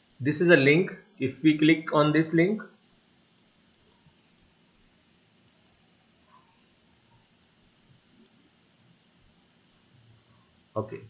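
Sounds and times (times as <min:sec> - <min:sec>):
computer mouse clicks: 0:03.4 - 0:04.5, 0:05.4 - 0:06.5, 0:07.4 - 0:07.6, 0:08.2 - 0:08.4.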